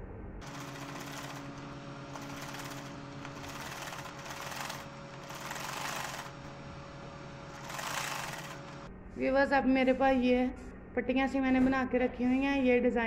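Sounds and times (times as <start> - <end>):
sewing machine running: 0.4 - 8.9.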